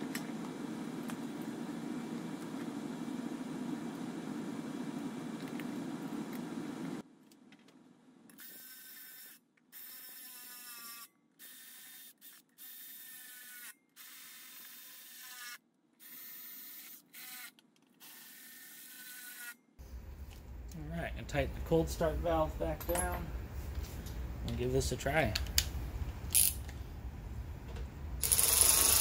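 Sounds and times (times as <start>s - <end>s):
cordless drill driving screws: 28.2s - 29.0s.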